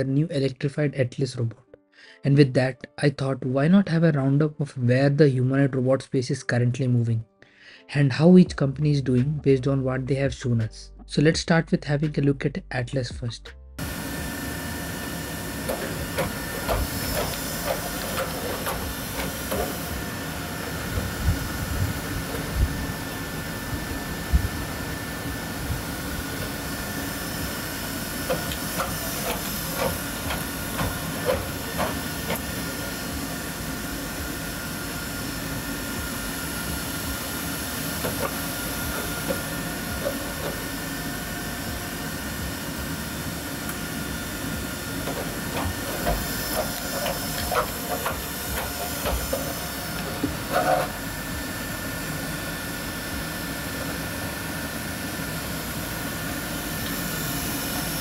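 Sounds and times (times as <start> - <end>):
steady hiss with high hum: 13.8 - 58.0.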